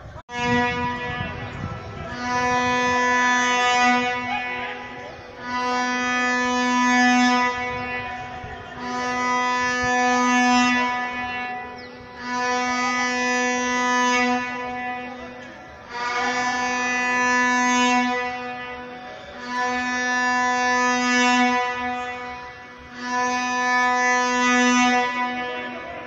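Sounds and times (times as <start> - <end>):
stadium horn blasts: 0.0 - 26.0.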